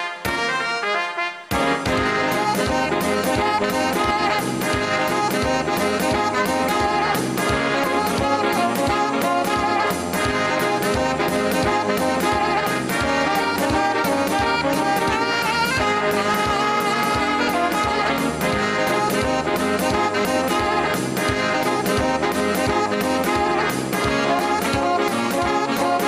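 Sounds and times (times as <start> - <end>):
saxophone melody: 0.0 - 26.0
backing track drum beat: 1.5 - 26.0.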